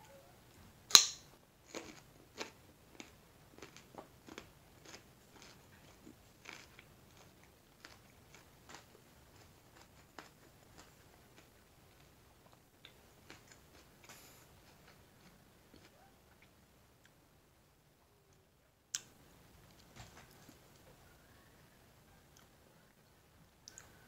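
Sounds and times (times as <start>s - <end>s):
carrot bitten with loud crunch: 1.7s - 8.9s
chewing crisp crunches: 1.7s - 12.1s, 13.2s - 16.5s.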